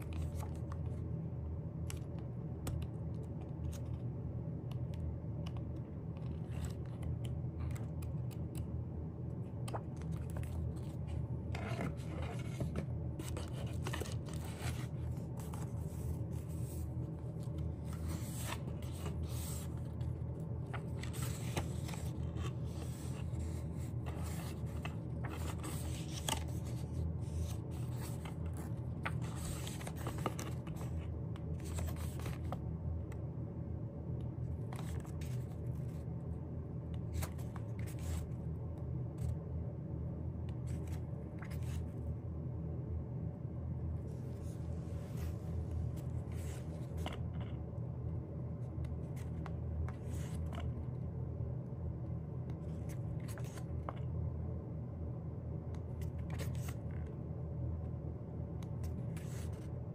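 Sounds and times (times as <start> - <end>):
steady low hum: 0.0 - 59.9.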